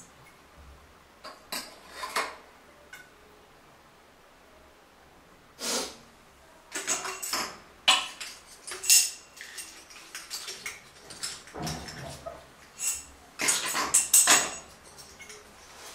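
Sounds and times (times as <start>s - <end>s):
metal parts and tools clattering: 6.7s - 15.9s.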